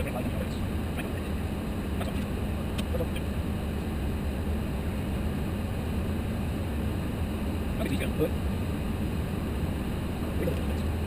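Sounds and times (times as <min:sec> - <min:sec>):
aircraft cockpit rumble: 0:00.0 - 0:11.0.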